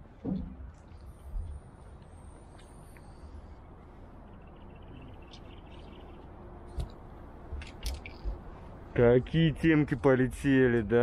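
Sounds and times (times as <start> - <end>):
faint low outdoor rumble: 0.0 - 11.0.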